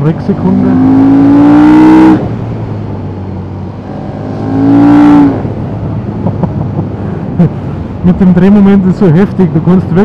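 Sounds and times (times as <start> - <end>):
wind: 0.0 - 10.0
motorcycle engine revving hard: 0.2 - 2.4, 3.9 - 5.5.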